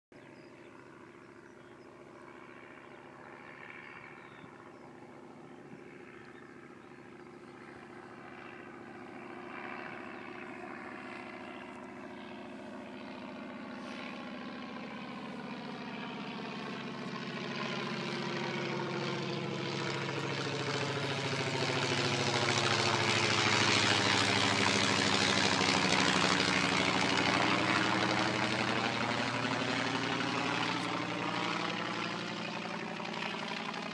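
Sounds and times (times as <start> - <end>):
propeller plane engine droning: 0.2 - 33.9.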